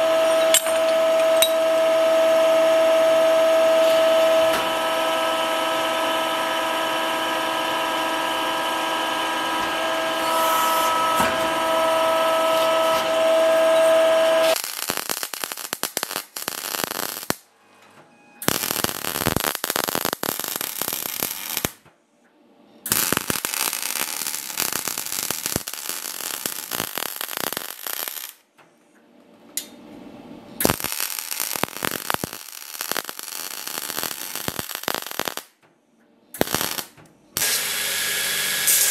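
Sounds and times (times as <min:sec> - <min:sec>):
welder arc crackling: 0:12.0 - 0:17.4, 0:18.4 - 0:21.8, 0:22.9 - 0:28.4, 0:30.6 - 0:35.5, 0:36.4 - 0:38.9.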